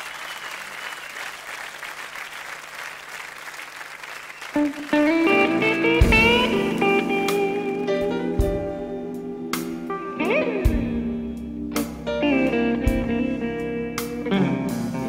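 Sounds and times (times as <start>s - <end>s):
audience applause: 0.0s - 7.8s
electric guitar blues: 4.6s - 15.0s.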